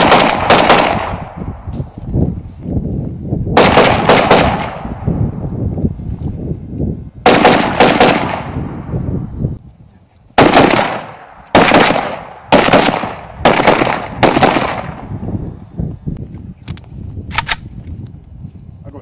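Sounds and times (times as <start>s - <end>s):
echoing gunshots: 0.0s - 1.4s, 3.6s - 5.0s, 7.2s - 8.9s, 10.4s - 15.1s.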